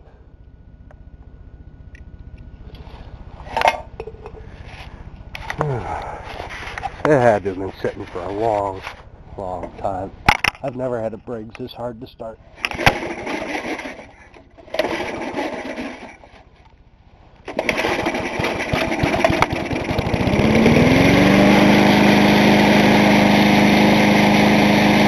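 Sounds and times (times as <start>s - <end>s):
lawnmower engine running: 12.6s - 16.4s, 17.4s - 25.0s
recoil starter pulls: 12.6s - 16.4s, 17.5s - 21.3s.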